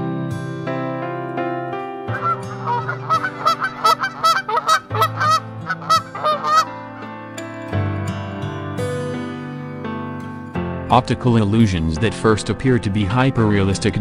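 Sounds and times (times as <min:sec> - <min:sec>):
soft background music: 0:00.0 - 0:14.0
honking waterfowl calls: 0:02.1 - 0:06.7.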